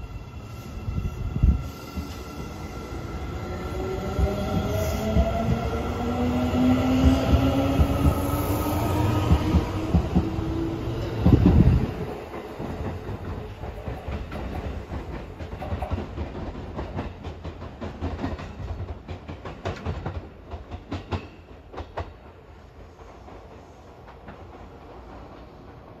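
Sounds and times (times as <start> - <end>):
train low rumble: 0.0 - 21.2
train wheels clacking over rail joints: 11.2 - 26.0.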